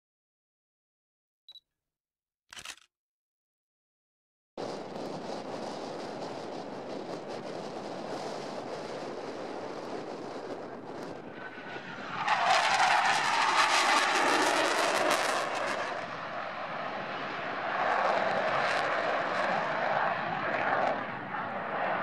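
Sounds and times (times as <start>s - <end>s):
fighter jet engine rumble: 4.6s - 22.0s.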